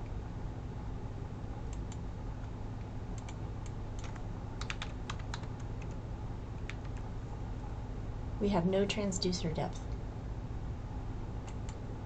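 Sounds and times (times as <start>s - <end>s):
low steady hum: 0.0s - 12.0s
keyboard keystrokes: 3.2s - 6.0s, 6.6s - 7.0s.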